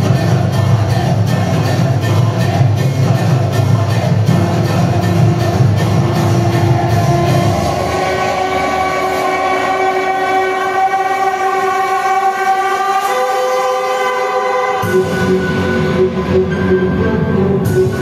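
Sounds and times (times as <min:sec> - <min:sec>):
beat and bass: 0:00.0 - 0:11.7, 0:14.8 - 0:18.0
dance music over loudspeakers: 0:00.0 - 0:18.0
held synth chord: 0:04.3 - 0:18.0.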